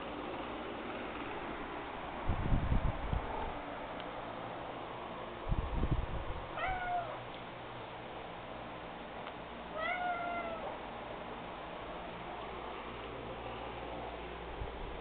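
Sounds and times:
cat meowing: 0:06.6 - 0:07.2, 0:09.7 - 0:10.8.

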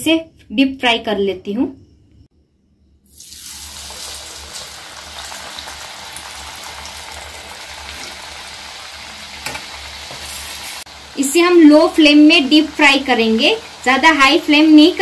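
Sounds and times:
dough deep-frying in hot oil: 0:03.0 - 0:15.0.

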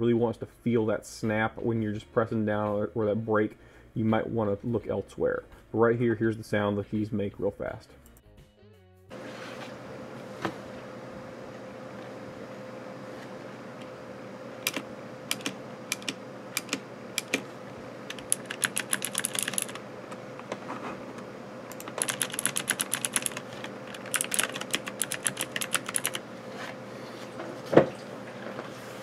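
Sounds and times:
clicky keyboard typing: 0:14.6 - 0:17.4, 0:18.1 - 0:19.8, 0:21.7 - 0:26.2.

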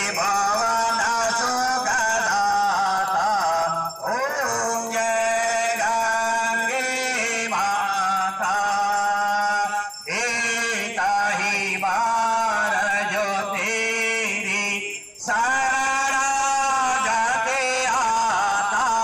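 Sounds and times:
man chanting a hymn: 0:00.0 - 0:19.0.

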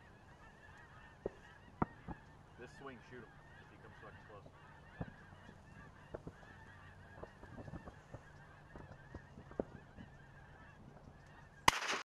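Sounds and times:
distant geese honking: 0:00.0 - 0:12.0.

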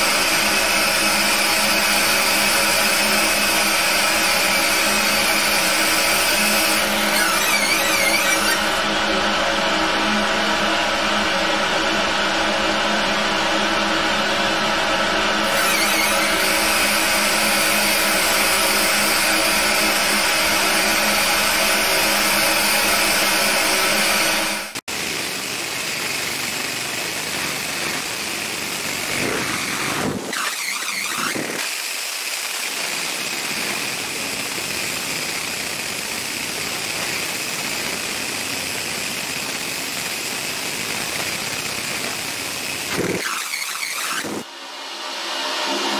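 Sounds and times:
hiss with high whine: 0:00.0 - 0:09.0, 0:15.4 - 0:45.9
laser engraver humming: 0:15.4 - 0:31.6.

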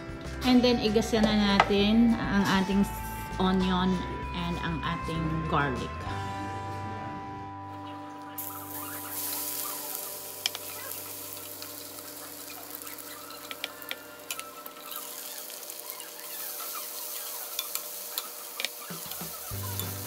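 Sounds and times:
garlic and onion sizzling in oil: 0:08.4 - 0:20.0
spatula scraping and tapping pan: 0:10.4 - 0:20.0.

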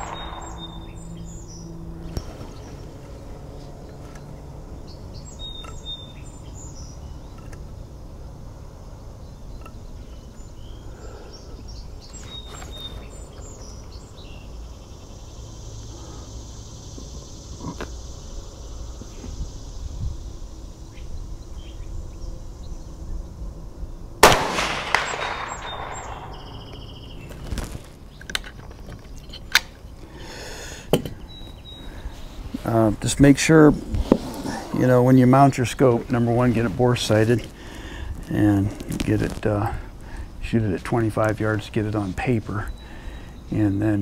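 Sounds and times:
rifle shot with echo: 0:00.0 - 0:01.6, 0:24.2 - 0:27.0
birds chirping: 0:00.0 - 0:44.0.

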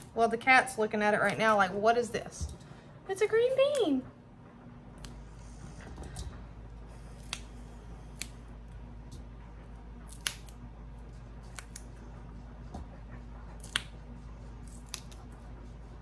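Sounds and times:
low steady hum: 0:00.0 - 0:16.0
green beans snapping: 0:07.2 - 0:08.5, 0:10.1 - 0:10.6, 0:11.4 - 0:12.0, 0:13.6 - 0:14.0, 0:14.6 - 0:15.2.

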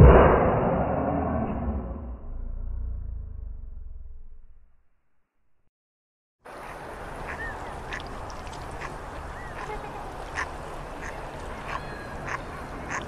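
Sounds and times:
waterfowl honking and quacking: 0:06.6 - 0:13.0.

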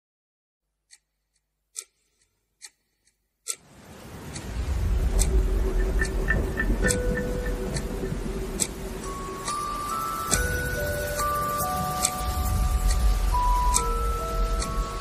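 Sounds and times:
sharp ticks: 0:00.9 - 0:03.6, 0:04.3 - 0:15.0
music swell with deep bass: 0:04.4 - 0:15.0.

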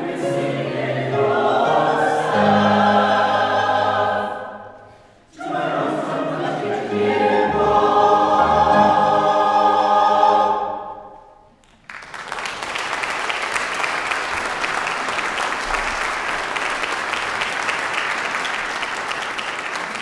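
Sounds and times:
choir singing chord: 0:00.0 - 0:11.4
audience applauding: 0:11.6 - 0:20.0.

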